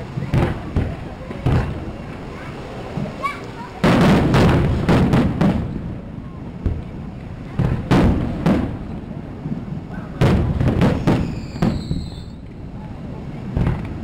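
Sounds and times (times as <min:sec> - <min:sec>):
fireworks booming: 0:00.0 - 0:14.0
thin high whistle: 0:11.0 - 0:12.5.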